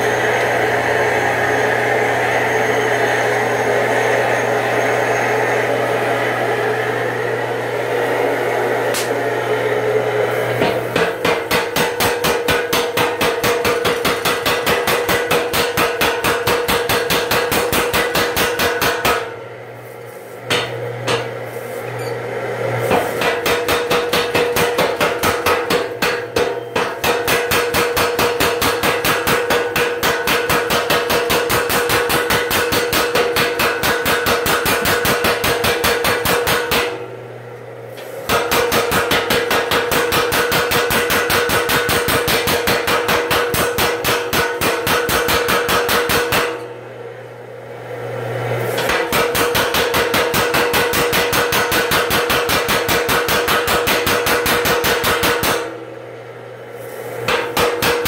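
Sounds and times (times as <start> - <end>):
power hammer pounding: 10.5 - 19.4, 20.4 - 21.4, 22.8 - 37.1, 38.2 - 46.7, 48.8 - 55.8, 57.2 - 58.0.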